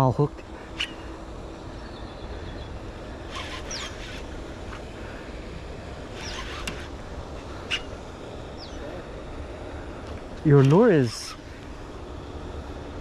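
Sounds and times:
low background rumble: 0:00.0 - 0:13.0
high squeaky chirps: 0:00.7 - 0:01.2, 0:03.3 - 0:04.2, 0:06.2 - 0:08.0.

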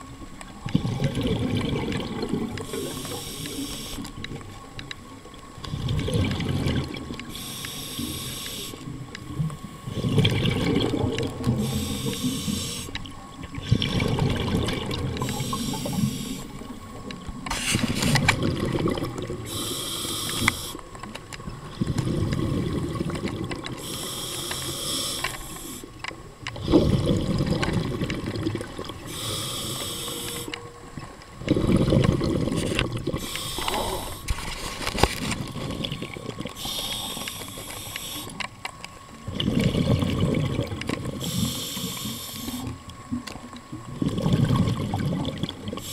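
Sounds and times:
rush of exhaled bubbles: 0:00.6 - 0:03.6, 0:05.6 - 0:07.4, 0:08.9 - 0:12.8, 0:13.5 - 0:20.5, 0:21.6 - 0:24.0, 0:26.5 - 0:30.4, 0:31.4 - 0:37.3, 0:39.2 - 0:42.8, 0:43.8 - 0:45.9
hissing regulator inhale: 0:02.6 - 0:04.1, 0:07.3 - 0:08.9, 0:11.6 - 0:13.0, 0:15.2 - 0:16.8, 0:19.4 - 0:20.9, 0:23.8 - 0:26.0, 0:29.0 - 0:30.6, 0:32.6 - 0:35.0, 0:36.5 - 0:38.4, 0:41.2 - 0:42.8.

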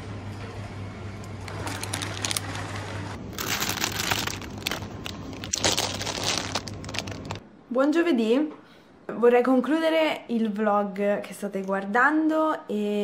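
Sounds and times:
plastic bag rustling: 0:01.4 - 0:07.4.

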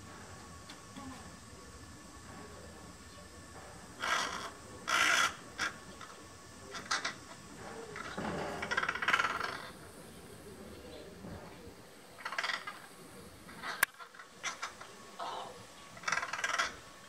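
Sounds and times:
crow cawing: 0:04.0 - 0:06.1, 0:06.7 - 0:07.4, 0:08.0 - 0:09.8, 0:12.2 - 0:12.9, 0:13.6 - 0:16.9.

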